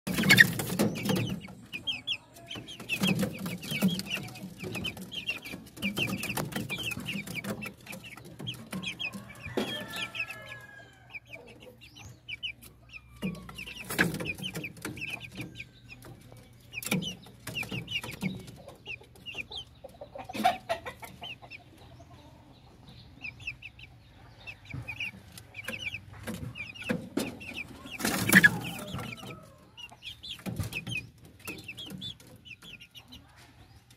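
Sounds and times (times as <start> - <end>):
chicks peeping: 0.0 - 33.9
hen clucking: 0.1 - 33.9.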